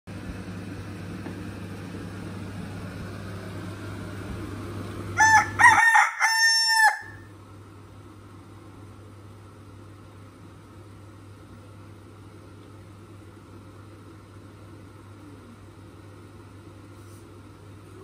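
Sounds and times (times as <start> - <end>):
air conditioner humming: 0.1 - 18.0
rooster crowing: 5.2 - 7.3.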